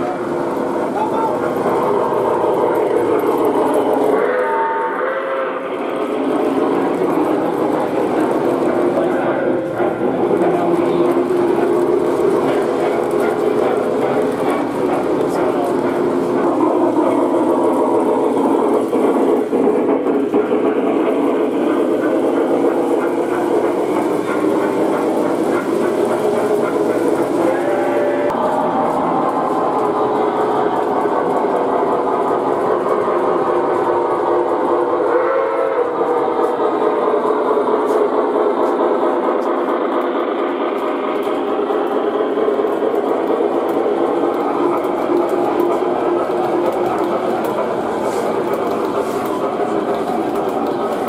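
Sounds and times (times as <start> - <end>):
model train wheels rumbling on track: 0.0 - 51.0
clicks from rails: 37.2 - 51.0.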